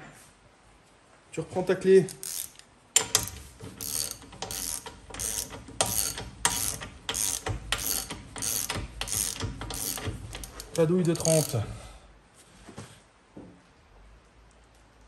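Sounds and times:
ratchet wrench clicking: 0:02.1 - 0:11.6.

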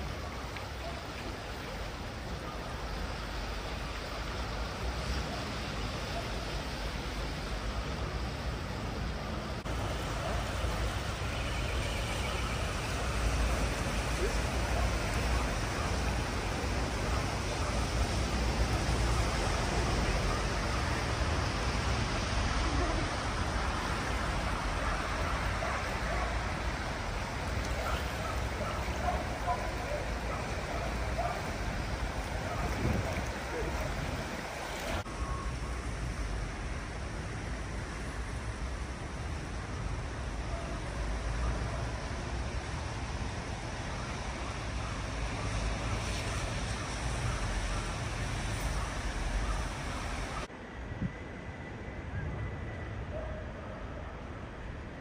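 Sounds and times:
river water rushing: 0:00.0 - 0:42.2.

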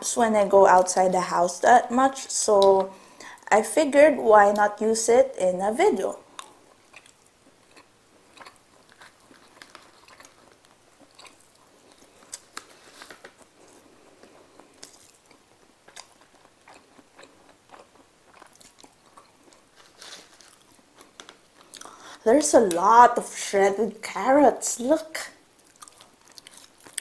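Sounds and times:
chewing and mouth sounds: 0:06.2 - 0:22.8, 0:25.5 - 0:27.0.

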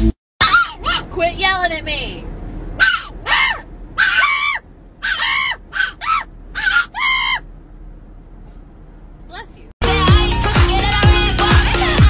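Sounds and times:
puppy yelping: 0:00.4 - 0:01.1, 0:02.8 - 0:07.5.

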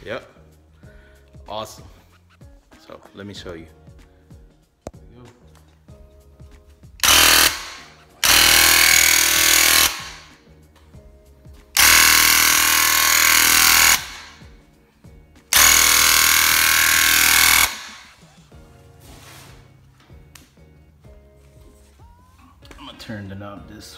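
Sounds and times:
electric pump buzzing: 0:07.0 - 0:10.3, 0:11.8 - 0:14.4, 0:15.5 - 0:18.2
paint sprayer spraying: 0:11.8 - 0:14.4, 0:15.5 - 0:18.2.

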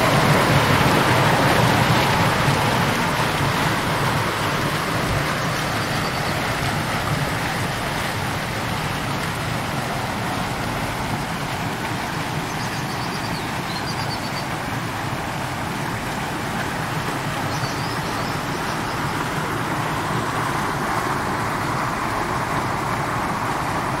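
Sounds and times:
fountain water splashing into basin: 0:00.0 - 0:24.0.

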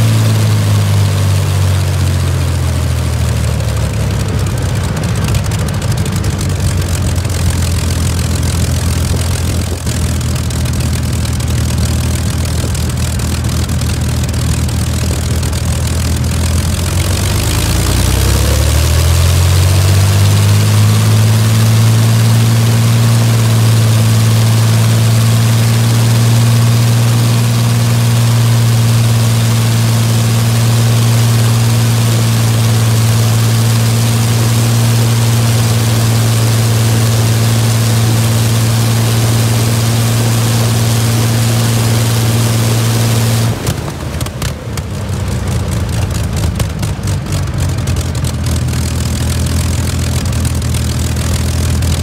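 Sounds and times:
aero engine running: 0:00.0 - 0:52.0.

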